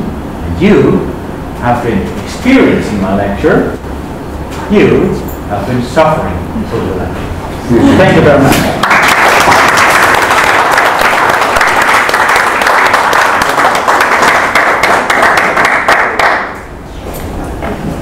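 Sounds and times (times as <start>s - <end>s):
small audience clapping: 8.6s - 16.7s.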